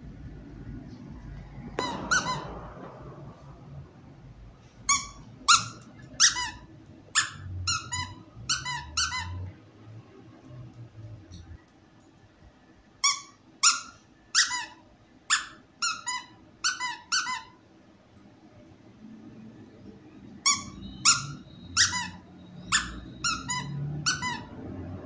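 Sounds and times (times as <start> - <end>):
squeaky dog toy squeaking: 4.9 - 9.5, 13.0 - 17.6, 20.4 - 24.6.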